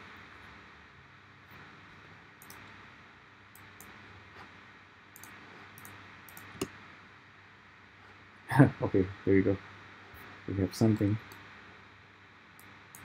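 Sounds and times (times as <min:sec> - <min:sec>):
low steady hiss: 0:00.0 - 0:13.0
computer mouse clicks: 0:02.4 - 0:02.8, 0:03.5 - 0:04.0, 0:05.1 - 0:06.8, 0:12.6 - 0:13.0.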